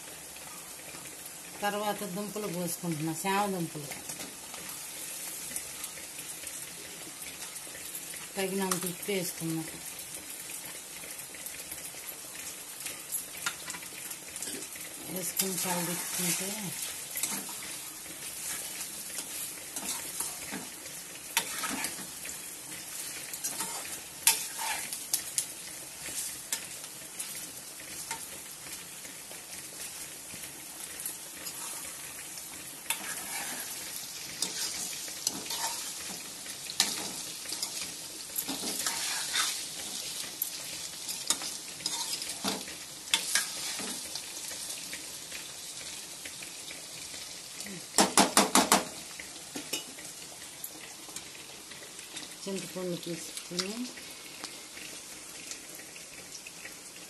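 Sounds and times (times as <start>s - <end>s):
food sizzling in oil: 0.0s - 57.0s
metal spatula scraping pan: 21.4s - 22.2s, 23.3s - 25.0s, 32.9s - 35.9s, 38.5s - 39.6s.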